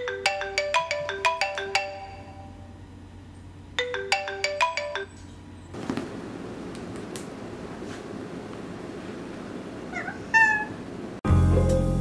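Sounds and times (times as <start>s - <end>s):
phone alarm marimba tone: 0.0s - 2.7s, 3.8s - 5.2s.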